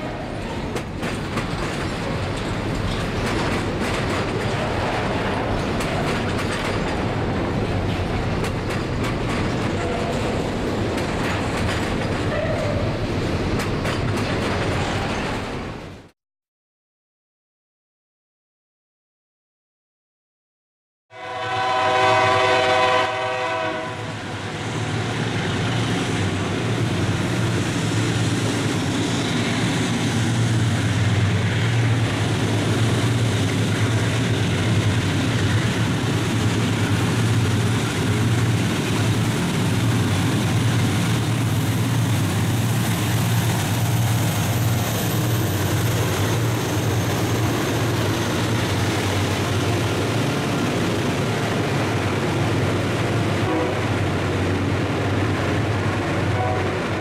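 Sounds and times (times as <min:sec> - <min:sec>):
wheels on rails: 0:00.1 - 0:15.7
locomotive air horn blast: 0:21.1 - 0:24.3, 0:53.4 - 0:54.0, 0:56.3 - 0:57.0.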